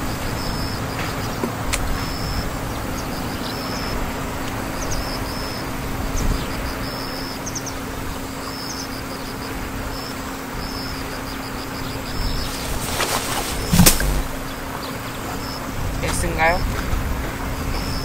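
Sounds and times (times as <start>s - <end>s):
steady rushing noise: 12.3s - 14.6s
low hum: 12.3s - 14.8s.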